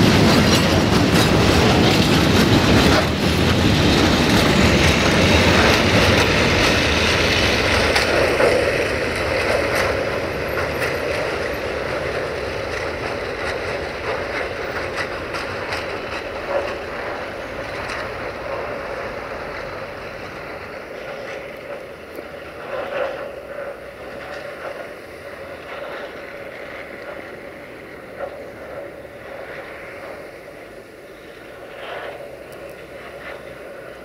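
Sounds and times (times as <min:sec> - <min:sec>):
clicks and clunks of rails: 0:00.0 - 0:24.9
train wheels rumbling on track: 0:00.0 - 0:34.0.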